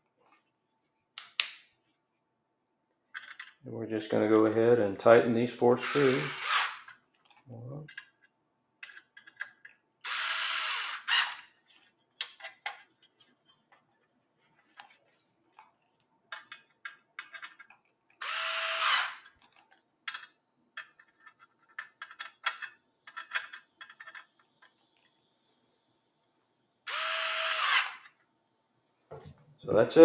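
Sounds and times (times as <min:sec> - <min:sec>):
electric screwdriver whirring: 0:05.8 - 0:06.9, 0:10.0 - 0:11.4, 0:18.2 - 0:19.2, 0:26.9 - 0:28.1.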